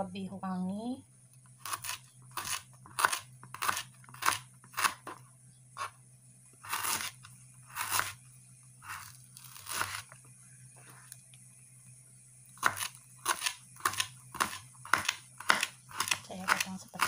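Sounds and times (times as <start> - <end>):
knife crunching through stalk: 1.6 - 5.2, 8.8 - 10.1.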